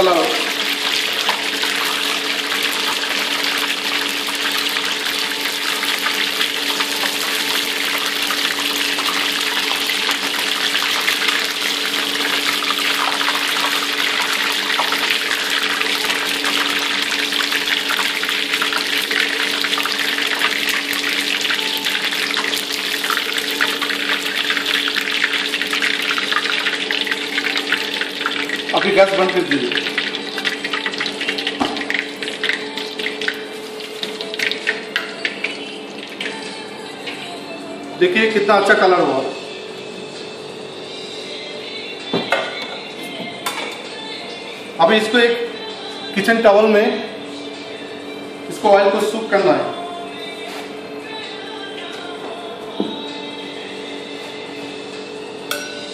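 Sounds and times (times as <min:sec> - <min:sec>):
oil sizzling in deep-frying: 0:00.0 - 0:36.6.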